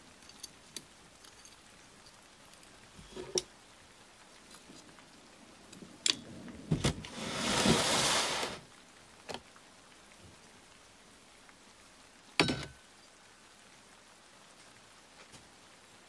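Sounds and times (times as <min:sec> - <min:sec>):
rushing hiss: 0:06.3 - 0:08.7.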